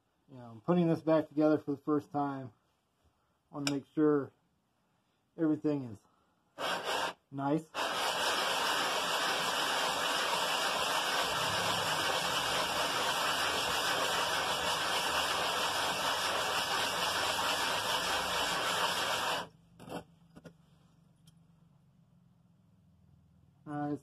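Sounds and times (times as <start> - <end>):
metal scraping on sandpaper: 6.6 - 7.2, 12.5 - 20.1.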